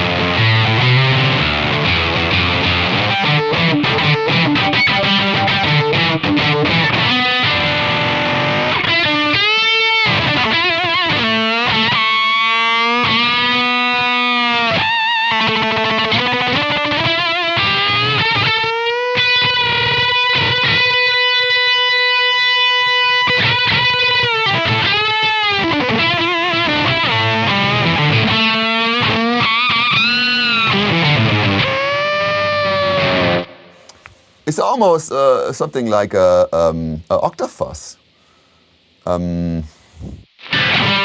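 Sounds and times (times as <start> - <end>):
fuzz electric guitar lead: 0.0 - 37.7, 39.0 - 41.0.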